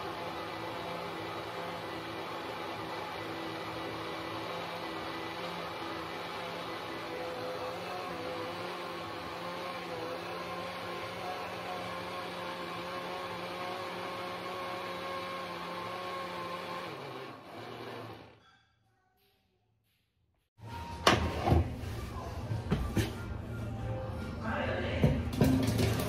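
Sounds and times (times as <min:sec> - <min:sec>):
electric blender whirring: 0:00.0 - 0:18.4, 0:25.3 - 0:26.0.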